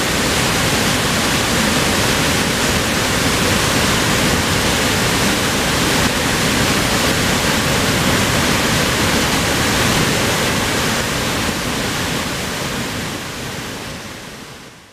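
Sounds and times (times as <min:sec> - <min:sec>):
water gushing torrent: 0:00.0 - 0:14.9.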